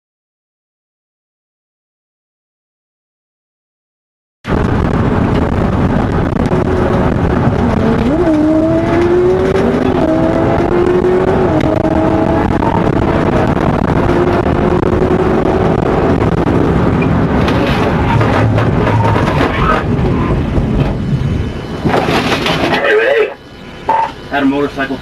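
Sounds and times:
road and wind noise: 0:04.4 - 0:25.0
car engine accelerating: 0:04.5 - 0:23.2.

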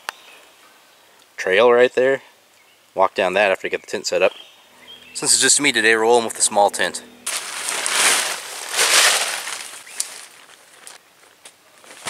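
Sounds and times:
tent fabric rustling and flapping: 0:07.3 - 0:11.0.

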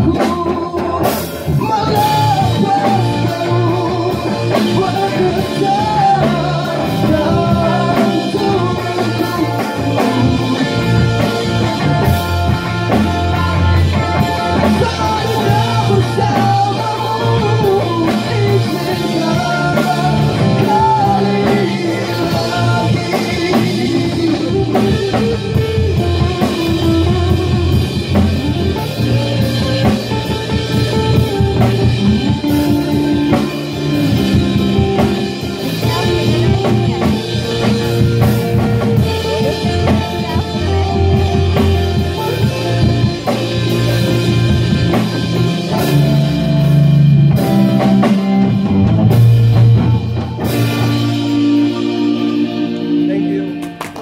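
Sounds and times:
man singing: 0:00.0 - 0:48.5, 0:49.8 - 0:54.0
bass guitar: 0:00.0 - 0:54.0
drum kit beat: 0:00.0 - 0:54.0
electric guitar: 0:00.0 - 0:54.0.

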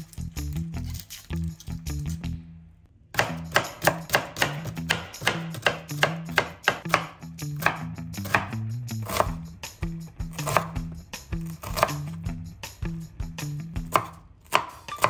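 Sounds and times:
knife chopping on wooden board: 0:03.2 - 0:09.4, 0:10.3 - 0:10.9, 0:11.6 - 0:12.1, 0:13.8 - 0:15.0.

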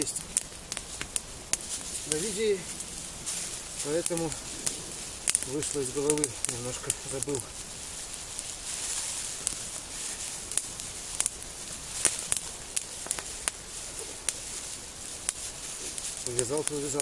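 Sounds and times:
campfire crackling and popping: 0:00.0 - 0:17.0
plastic bag rustling: 0:01.6 - 0:17.0.

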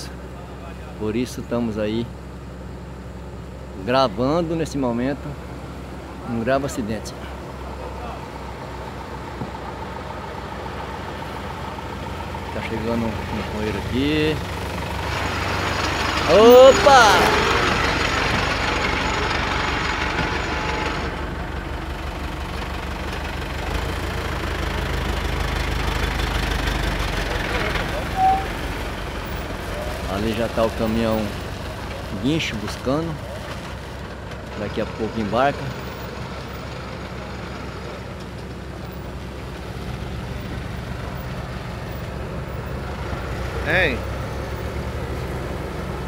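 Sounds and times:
diesel engine idling: 0:00.0 - 0:46.0.

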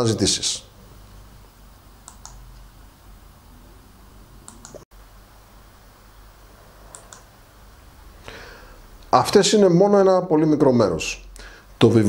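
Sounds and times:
steady low hum: 0:00.0 - 0:12.0
faint short clicks: 0:02.0 - 0:02.4, 0:04.5 - 0:04.8, 0:06.9 - 0:07.3.

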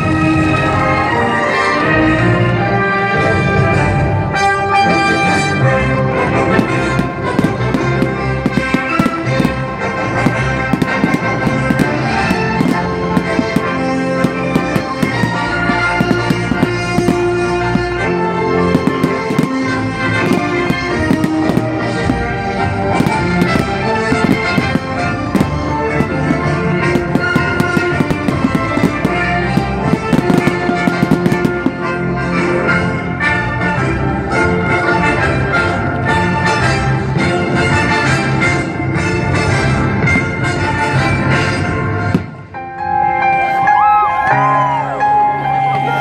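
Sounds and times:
loud music: 0:00.0 - 0:36.1
fireworks bangs and crackles: 0:05.1 - 0:42.6.

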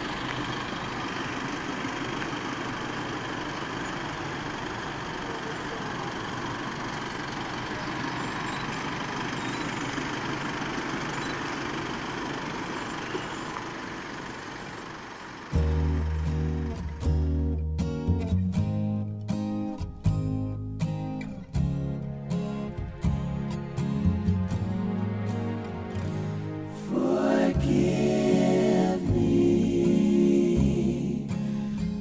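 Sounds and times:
vehicles rolling past: 0:00.0 - 0:20.2, 0:20.8 - 0:32.0
music: 0:15.6 - 0:32.0.

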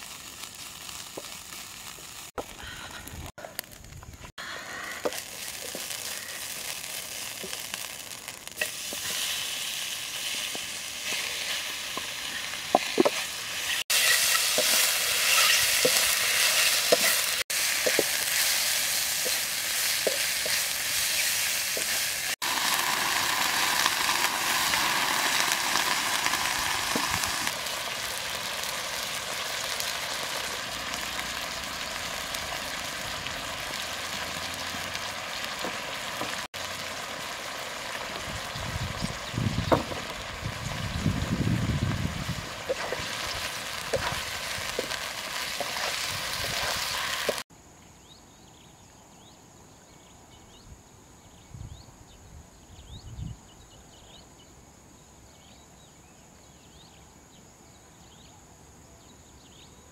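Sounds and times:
mushrooms sizzling in wok: 0:00.0 - 0:47.5
spatula scraping pan: 0:12.8 - 0:22.1.

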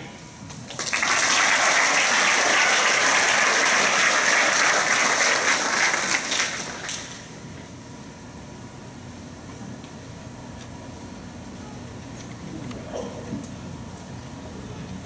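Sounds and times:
audience applauding: 0:00.7 - 0:07.2.

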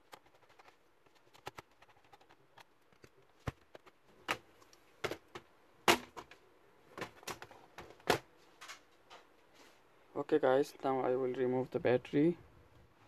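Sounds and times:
plastic laptop casing clicks and knocks: 0:00.0 - 0:08.3.

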